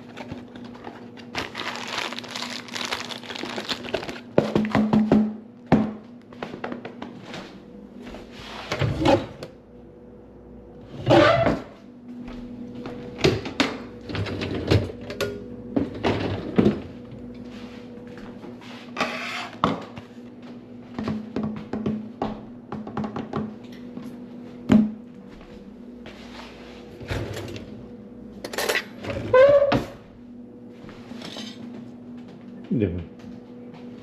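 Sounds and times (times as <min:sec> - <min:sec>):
papery rustle: 0:00.0 - 0:04.3.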